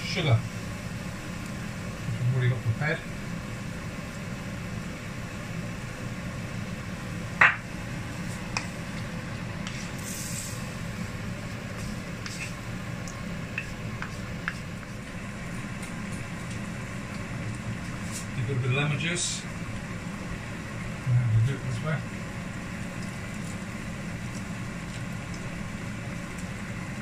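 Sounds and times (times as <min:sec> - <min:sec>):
sharp knock on wok: 0:07.4 - 0:07.7
spatula scraping a wok: 0:09.6 - 0:10.6, 0:11.8 - 0:12.7.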